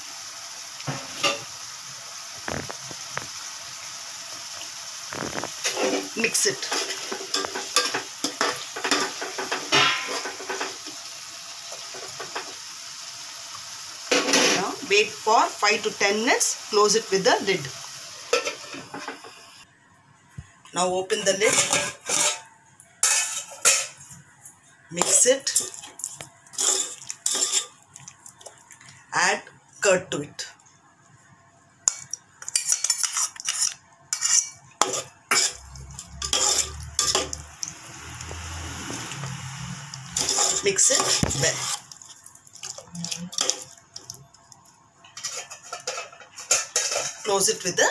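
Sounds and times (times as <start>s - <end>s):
pot sizzling: 0.0s - 19.7s, 20.8s - 24.2s, 24.9s - 29.4s, 31.8s - 47.9s
metal spoon scraping pot: 21.2s - 24.0s, 25.0s - 27.8s, 31.9s - 37.4s, 40.1s - 41.9s, 45.2s - 47.4s.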